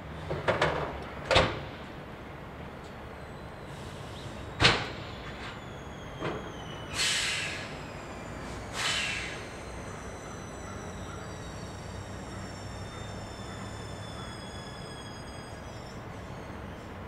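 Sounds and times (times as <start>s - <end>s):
hissing air bursts: 6.9s - 9.6s.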